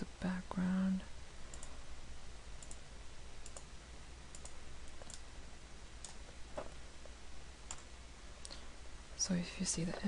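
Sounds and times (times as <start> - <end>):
steady low hum: 0.0 - 10.0
computer mouse clicking: 1.5 - 1.8, 2.6 - 2.8, 3.4 - 3.7, 4.3 - 5.2, 6.0 - 6.2, 7.7 - 7.9.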